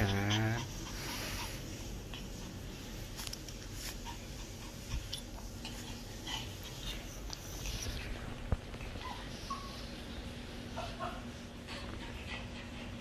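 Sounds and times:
steady low hum: 0:00.0 - 0:13.0
light clicks and rustles: 0:03.0 - 0:04.0.

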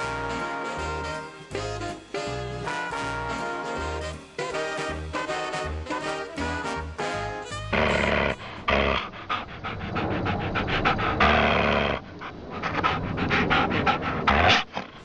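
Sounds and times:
rapid panting: 0:07.7 - 0:15.0.

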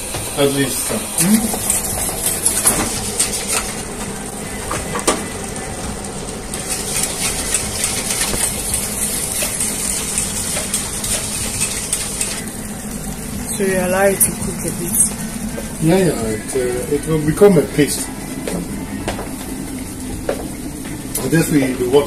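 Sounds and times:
steady hiss: 0:00.0 - 0:22.0
whisk stirring in metal pot: 0:00.4 - 0:04.0, 0:06.5 - 0:12.5.

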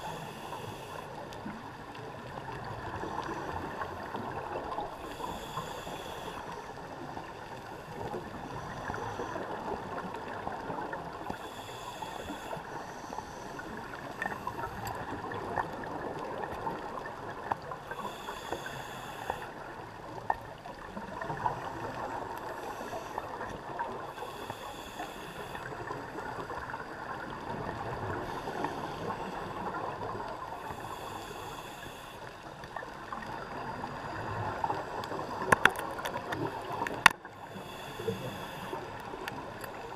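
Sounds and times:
scuba regulator hiss: 0:00.0 - 0:01.0, 0:05.0 - 0:06.5, 0:11.4 - 0:13.3, 0:18.0 - 0:19.5, 0:24.1 - 0:25.7, 0:30.6 - 0:32.2, 0:37.5 - 0:38.9
muffled underwater wash: 0:00.0 - 0:39.9
crackles and sharp clicks: 0:34.7 - 0:37.3.

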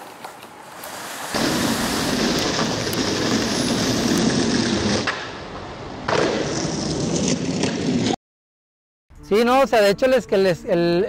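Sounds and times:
skateboard landing: 0:00.0 - 0:08.2
skateboard wheels rolling on concrete: 0:00.0 - 0:08.2.

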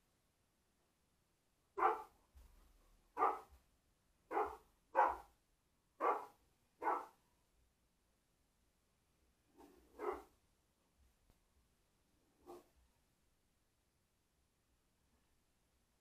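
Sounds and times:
dog barking: 0:01.8 - 0:02.2, 0:03.1 - 0:03.5, 0:04.3 - 0:05.3, 0:06.0 - 0:07.2, 0:09.9 - 0:10.4, 0:12.4 - 0:12.7.

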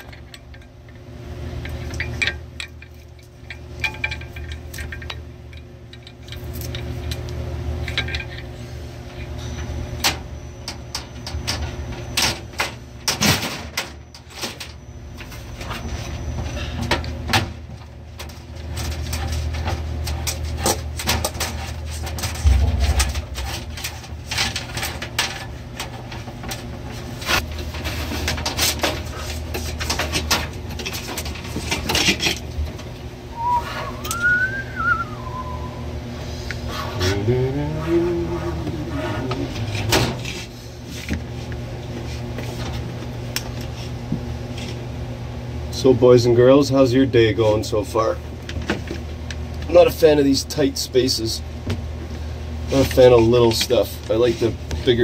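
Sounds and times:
steady low hum: 0:00.0 - 0:55.0
heavy thump: 0:22.4 - 0:23.9.

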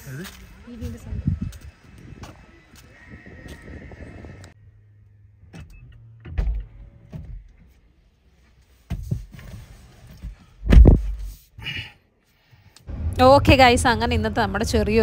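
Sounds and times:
car door knocks and thumps: 0:10.6 - 0:11.1
low motor hum: 0:12.9 - 0:15.0.

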